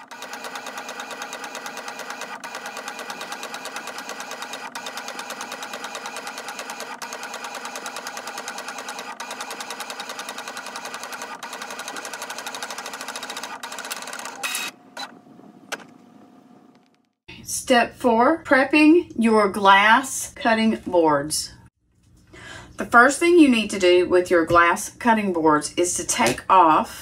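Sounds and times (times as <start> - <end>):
inkjet printer head buzzing: 0.0 - 15.1.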